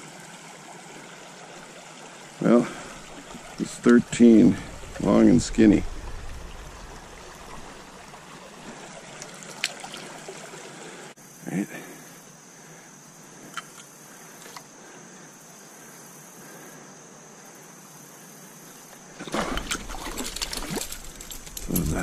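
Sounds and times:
stream rushing over riffle: 0.0 - 11.2, 19.2 - 22.0
fish splashing at surface: 19.2 - 21.6.

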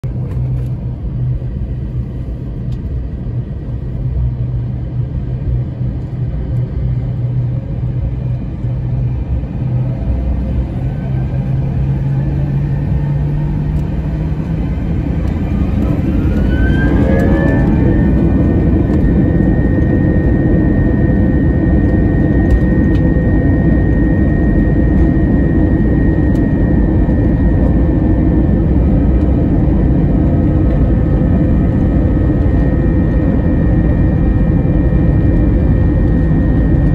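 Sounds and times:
jet engines spooling up: 8.2 - 36.9.

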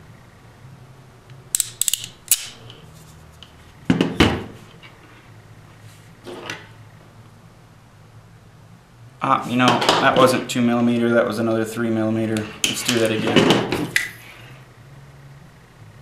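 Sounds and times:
ratcheting crimper clicking: 1.5 - 2.7
snap with clatter: 1.6 - 2.8.

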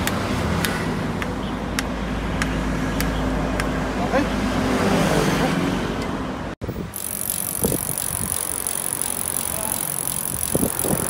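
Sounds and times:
bicycle tyre noise: 6.9 - 11.0
freewheel hubs ticking: 6.9 - 11.0.

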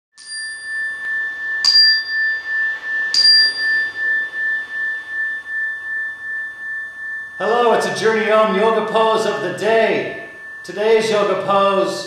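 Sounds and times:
metal chime bar ringing: 0.2 - 4.2.

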